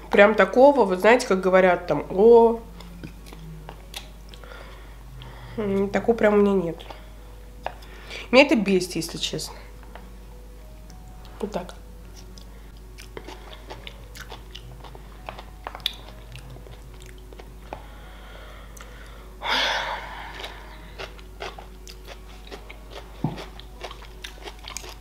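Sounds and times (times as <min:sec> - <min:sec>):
wet chewing mouth sounds: 0:02.7 - 0:04.5, 0:12.2 - 0:17.5, 0:20.3 - 0:25.0.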